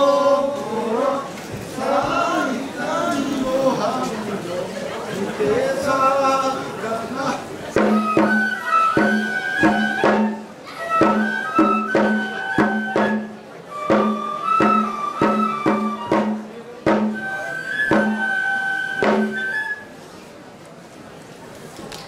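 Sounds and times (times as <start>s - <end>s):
drum beat: 7.8s - 8.4s, 9.0s - 10.4s, 11.0s - 13.2s, 13.9s - 17.2s
flute melody: 7.8s - 20.1s.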